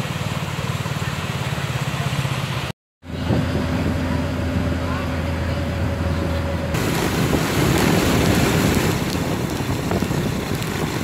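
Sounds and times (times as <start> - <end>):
wind buffeting microphone: 6.4 - 11.0.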